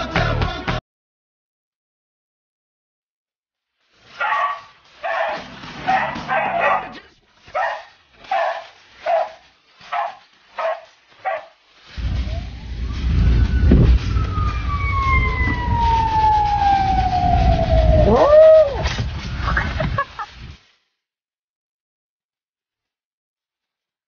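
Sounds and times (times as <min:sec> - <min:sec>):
dog barking: 0:04.2 - 0:11.6
car engine and road rumble: 0:12.0 - 0:18.2
long falling wail: 0:12.0 - 0:19.6.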